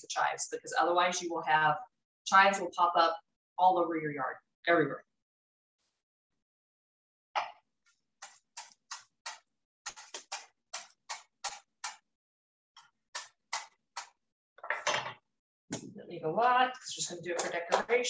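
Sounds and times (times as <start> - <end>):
knife chopping on wooden board: 8.2 - 12.0.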